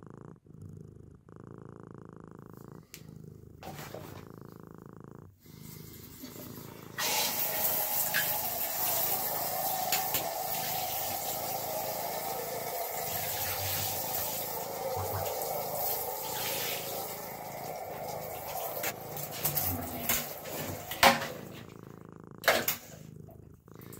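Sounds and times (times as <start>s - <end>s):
water running from tap: 5.7s - 21.4s.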